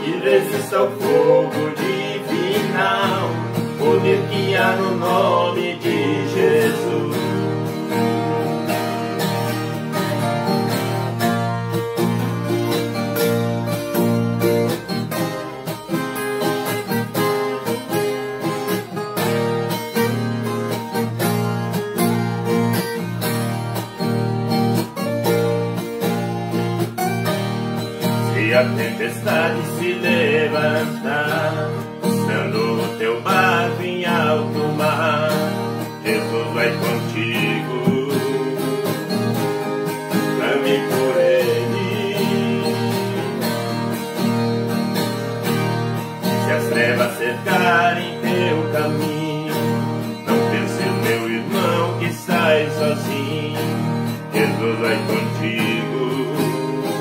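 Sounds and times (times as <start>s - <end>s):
voices singing: 0.0s - 10.0s, 28.2s - 44.0s, 46.2s - 57.0s
string instruments strumming and picking: 0.0s - 57.0s.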